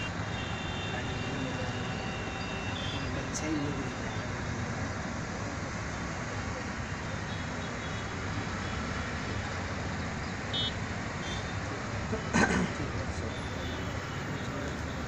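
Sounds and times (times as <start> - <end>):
distant road traffic hum: 0.0 - 15.0.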